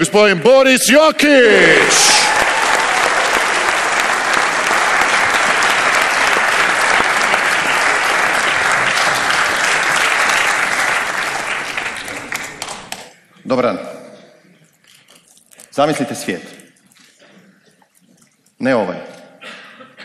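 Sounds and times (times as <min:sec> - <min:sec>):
large audience applauding: 0:01.6 - 0:13.1.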